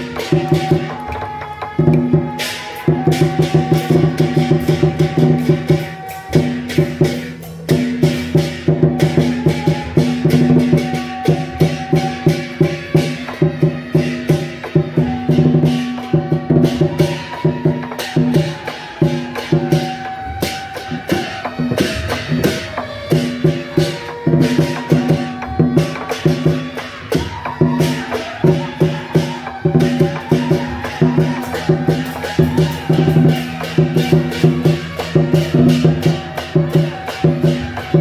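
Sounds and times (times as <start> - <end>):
procession music with fast percussion: 0.0 - 38.0.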